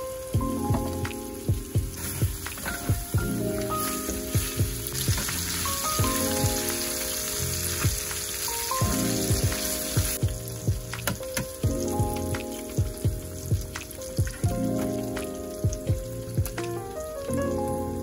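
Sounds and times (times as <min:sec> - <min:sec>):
food sizzling in a frying pan: 0:00.9 - 0:15.1.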